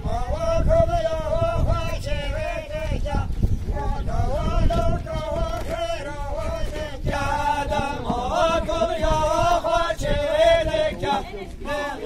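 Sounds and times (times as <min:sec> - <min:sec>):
chant-like vocal line: 0:00.0 - 0:12.0
low drum thuds: 0:02.4 - 0:11.8.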